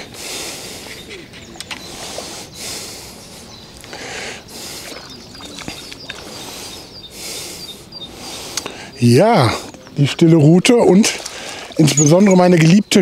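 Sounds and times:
fish splashing: 1.7s - 7.6s.

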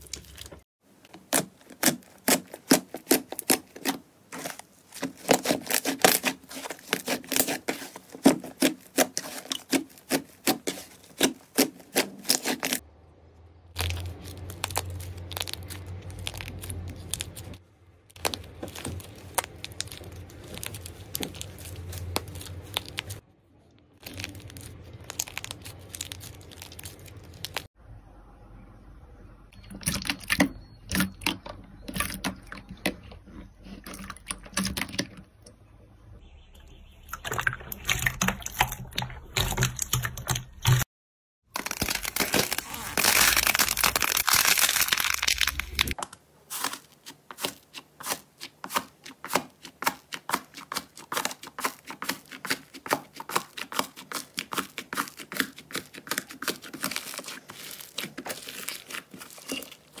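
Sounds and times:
slime crackling and popping: 0.0s - 12.8s, 13.7s - 23.2s, 24.0s - 27.7s, 41.5s - 60.0s
slime squeezed and torn: 13.7s - 23.2s, 24.0s - 27.7s, 41.6s - 60.0s.

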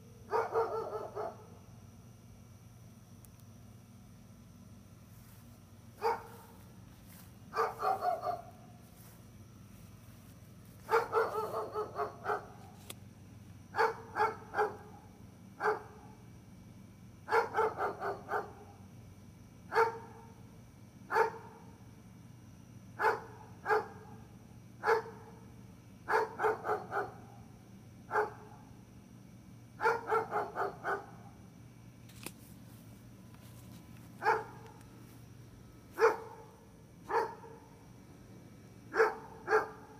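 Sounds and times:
faint low hum: 0.0s - 39.9s
dog barking: 0.3s - 1.6s, 6.0s - 6.6s, 7.5s - 8.6s, 10.8s - 12.6s, 13.8s - 15.0s, 15.6s - 16.0s, 17.3s - 18.7s, 19.7s - 20.3s, 21.1s - 21.6s, 23.0s - 24.1s, 24.8s - 25.4s, 26.1s - 27.3s, 28.1s - 28.6s, 29.8s - 31.2s, 34.2s - 34.7s, 36.0s - 37.7s, 38.9s - 39.9s.

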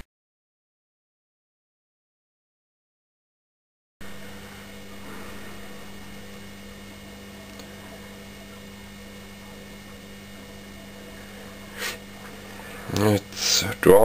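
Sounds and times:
low electrical hum: 4.0s - 14.0s.

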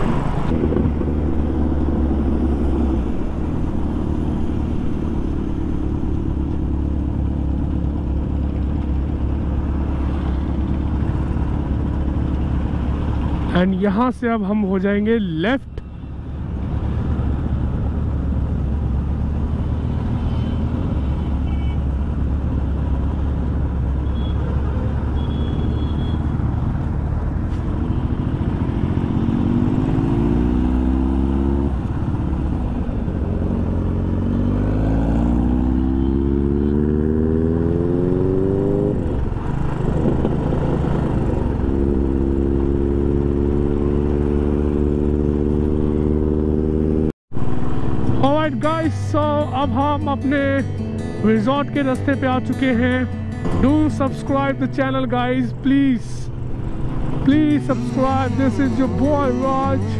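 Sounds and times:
motorcycle engine accelerating: 26.4s - 48.2s, 56.3s - 59.9s.

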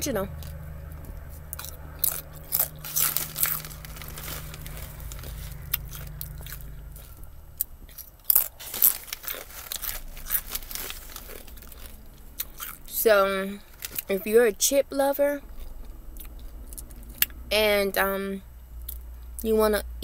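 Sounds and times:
low steady hum: 0.0s - 20.0s
potato chips crunching: 1.5s - 7.2s, 7.8s - 14.2s.

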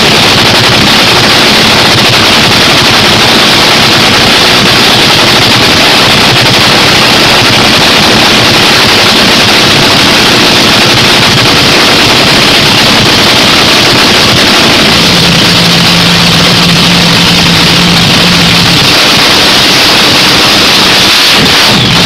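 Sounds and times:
loud racing engine running: 0.0s - 22.0s.

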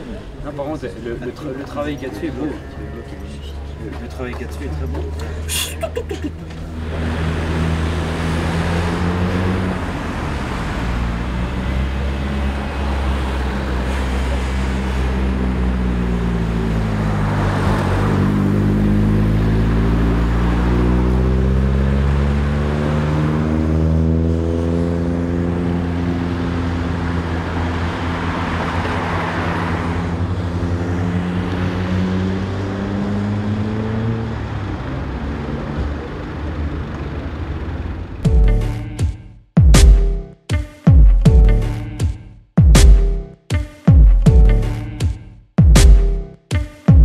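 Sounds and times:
car engine driving by: 6.4s - 39.2s.

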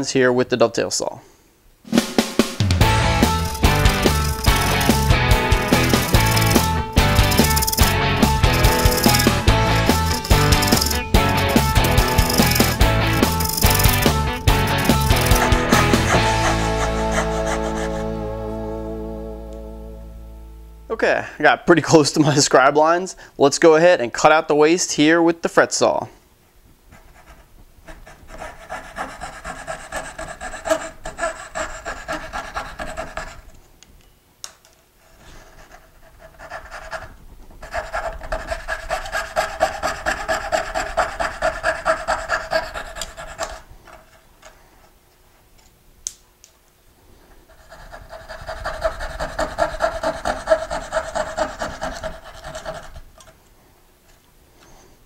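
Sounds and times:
fretsaw cutting wood: 2.8s - 18.2s, 28.4s - 33.4s, 37.7s - 43.6s, 47.6s - 53.1s.

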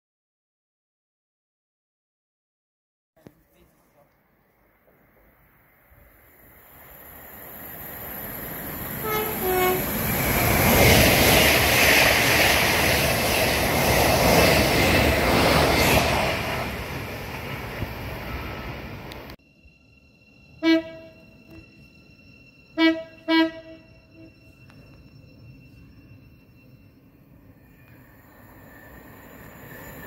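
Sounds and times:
train passing on rails: 3.5s - 30.0s
two-tone train horn: 9.0s - 10.0s, 20.6s - 21.6s, 22.7s - 24.4s.

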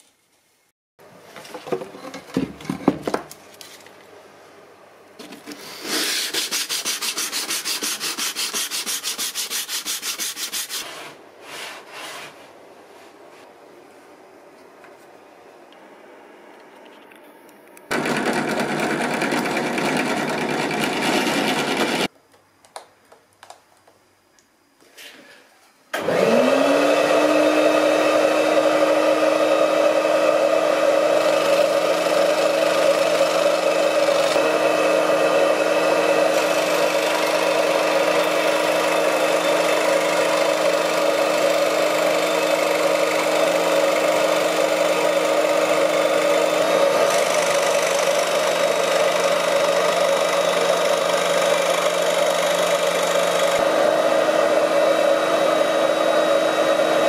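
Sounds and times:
saw blade cutting plywood: 5.5s - 12.4s, 17.9s - 22.1s, 30.8s - 53.7s
scroll saw motor hum: 26.0s - 57.0s.

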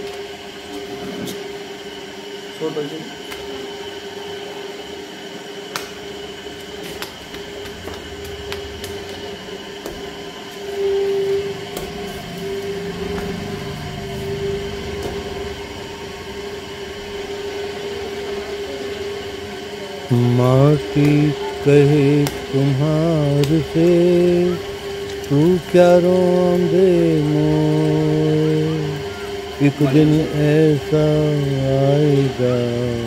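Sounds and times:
potter's wheel motor humming: 0.0s - 33.0s.

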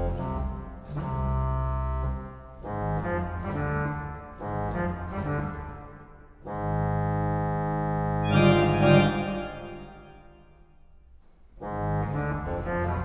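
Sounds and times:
pipe organ chord: 6.5s - 10.6s.

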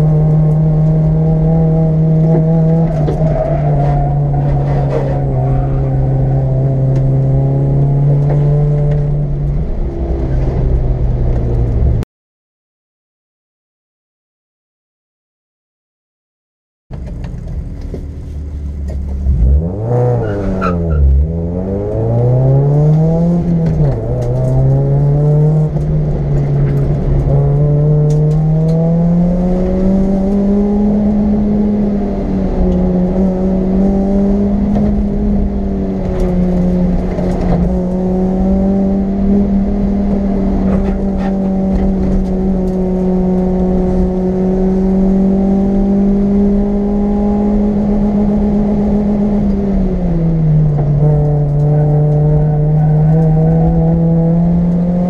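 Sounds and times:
race car engine revving: 0.0s - 12.0s, 18.9s - 55.0s.

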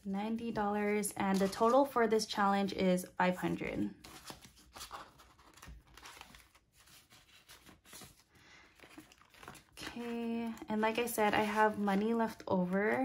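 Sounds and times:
paper banknotes rustling: 3.9s - 13.0s.

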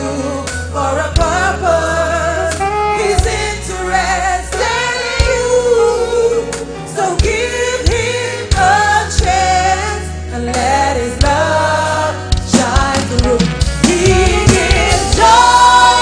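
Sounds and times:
bass: 0.0s - 16.0s
choir singing gospel song: 0.0s - 16.0s
drum hits: 12.4s - 16.0s.

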